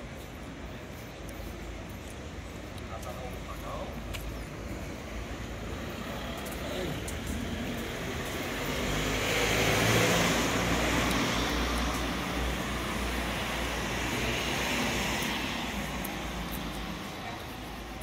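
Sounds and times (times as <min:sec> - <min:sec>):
motor vehicle passing: 0:05.9 - 0:17.2.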